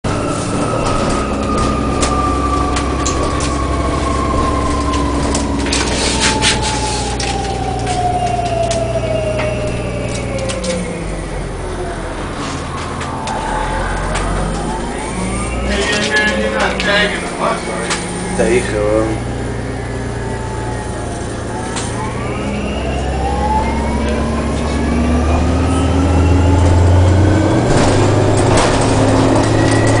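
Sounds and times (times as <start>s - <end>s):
bus engine drone: 0.0s - 30.0s
rattles and clicks: 0.1s - 10.9s, 27.6s - 30.0s.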